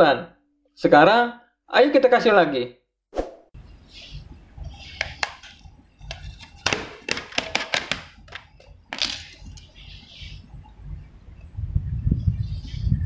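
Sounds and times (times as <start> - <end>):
plastic clicks and knocks: 5.0 - 9.2.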